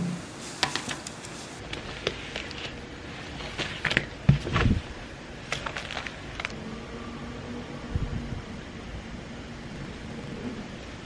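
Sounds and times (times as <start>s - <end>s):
paper rustling: 0.7s - 6.6s.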